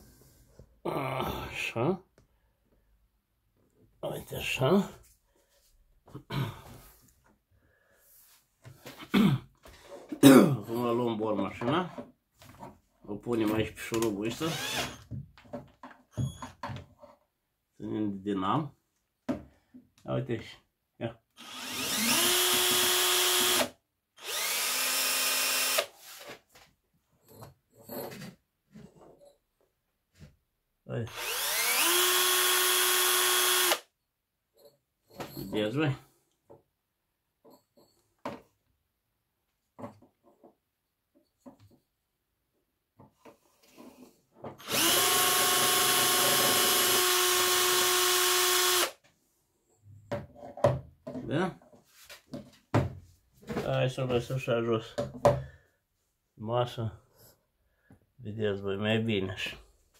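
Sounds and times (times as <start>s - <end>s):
cordless drill spinning dynamo: 14.4s - 15.0s, 21.4s - 25.9s, 31.1s - 33.9s, 44.6s - 49.0s.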